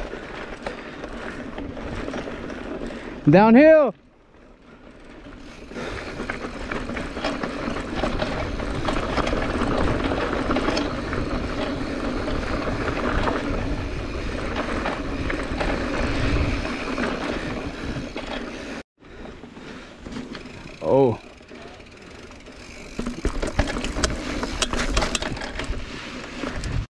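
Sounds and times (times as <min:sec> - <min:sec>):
bike rattling over bumps: 0:00.0 - 0:26.9
bike tyres rolling over stones: 0:00.0 - 0:26.9
wind noise on microphone: 0:06.0 - 0:18.3, 0:23.2 - 0:26.9.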